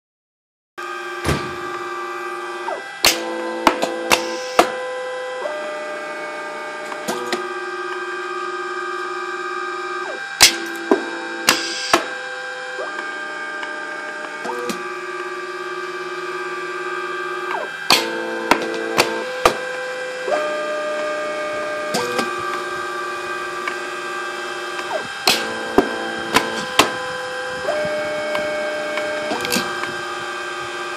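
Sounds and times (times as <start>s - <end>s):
feed motors whining: 0.8s - 30.9s
sharp machine clicks: 24.8s - 30.0s.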